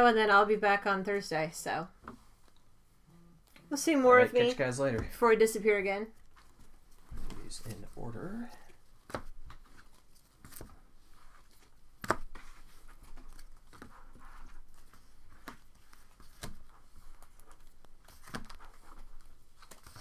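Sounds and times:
cards rustling: 6.2 - 20.0.

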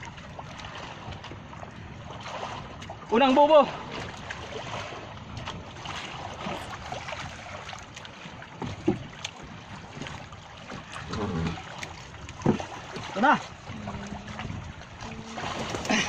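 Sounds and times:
water splashing from fish trap: 0.0 - 16.0
wind on microphone: 3.7 - 16.0.

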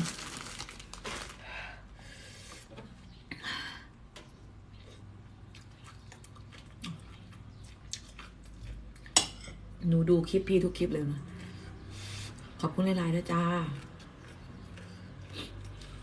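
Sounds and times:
person chewing food: 4.6 - 9.2, 13.3 - 16.0.

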